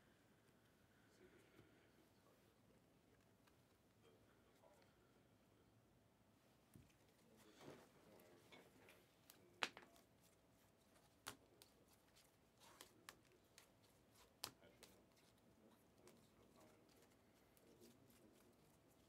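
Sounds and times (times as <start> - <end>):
cards clicking and tapping: 9.2 - 10.1, 10.9 - 15.4.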